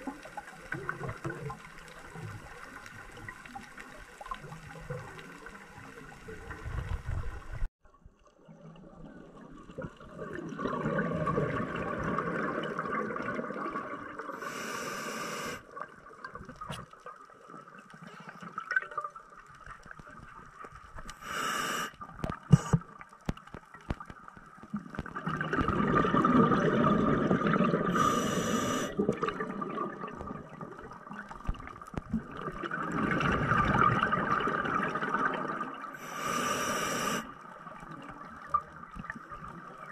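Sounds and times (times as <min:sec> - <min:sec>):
regulator exhale bubbling: 0:10.3 - 0:15.7, 0:21.2 - 0:21.9, 0:25.3 - 0:30.1, 0:32.6 - 0:37.3
regulator inhalation hiss: 0:14.4 - 0:15.6, 0:21.2 - 0:22.8, 0:27.9 - 0:28.9, 0:36.0 - 0:37.3.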